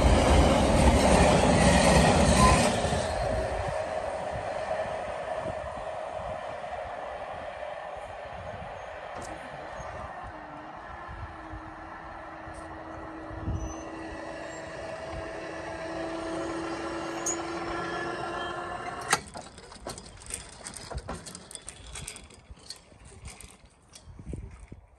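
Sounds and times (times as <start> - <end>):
barrier machines whining: 0.0 - 20.8
barrier clunk: 18.5 - 22.4.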